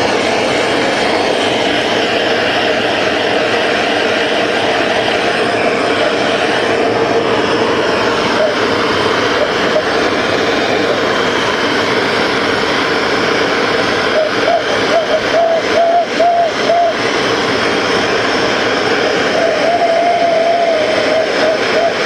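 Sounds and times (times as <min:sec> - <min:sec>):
gas torch hissing: 0:00.0 - 0:22.0
wavering tone: 0:07.9 - 0:10.0.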